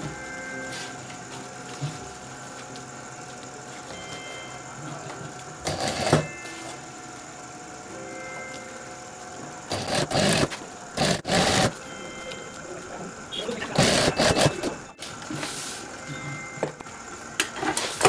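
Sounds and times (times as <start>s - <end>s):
industrial sewing machine stitching: 5.6s - 6.2s, 9.7s - 11.7s, 13.6s - 14.7s.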